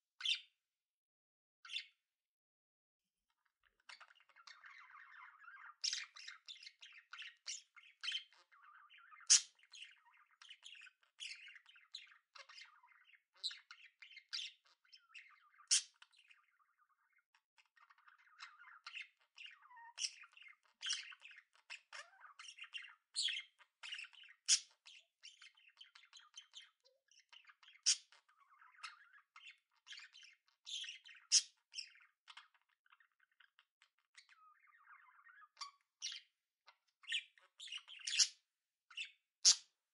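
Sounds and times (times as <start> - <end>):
budgerigars chattering: 3.9 - 14.6, 15.2 - 16.3, 37.0 - 38.4.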